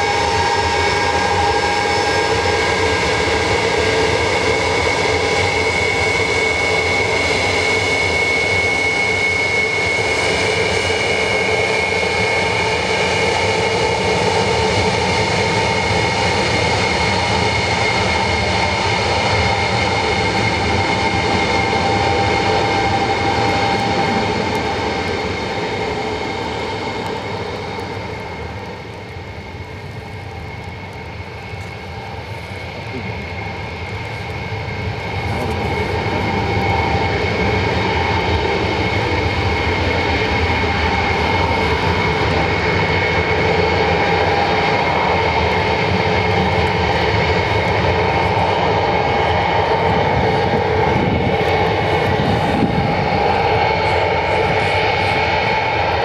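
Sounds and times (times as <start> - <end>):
jet engines whining: 0.0 - 56.0.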